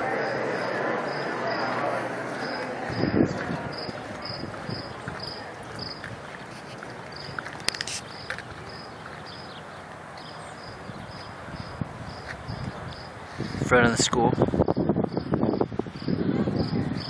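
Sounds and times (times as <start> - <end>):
cricket chirping: 0.2 - 6.1.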